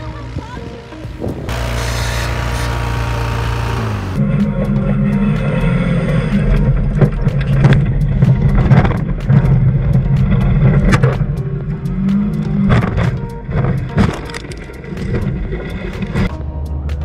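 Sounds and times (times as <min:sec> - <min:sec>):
car engine running: 0:00.0 - 0:16.1
knocks and rattles over rough ground: 0:06.4 - 0:11.5, 0:12.4 - 0:16.3.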